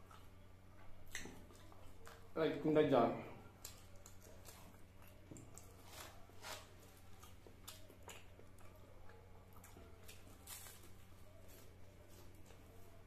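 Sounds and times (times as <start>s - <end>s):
man chewing with mouth clicks: 0.0s - 2.4s, 3.4s - 13.0s
low steady hum: 0.0s - 13.0s.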